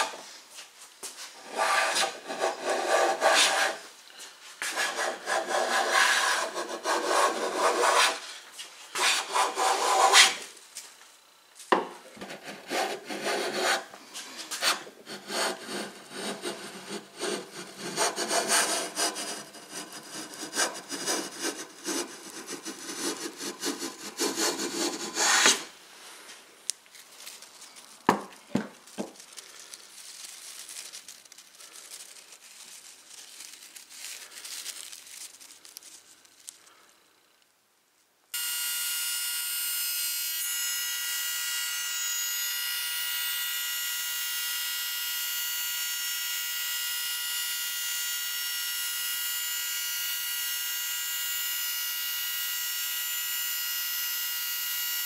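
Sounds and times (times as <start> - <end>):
hand plane rasping on wood: 1.5 - 3.8, 4.7 - 8.2, 9.0 - 10.4, 12.2 - 13.9, 14.6 - 25.7.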